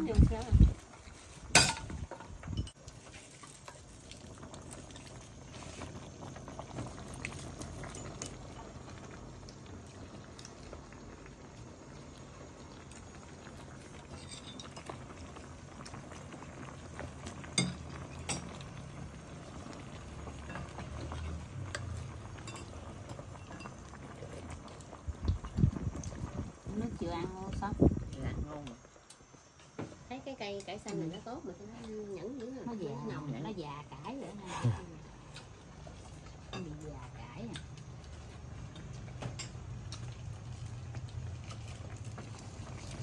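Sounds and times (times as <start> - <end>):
broth boiling in a pot: 0.0 - 43.0
utensils clinking: 14.1 - 15.0.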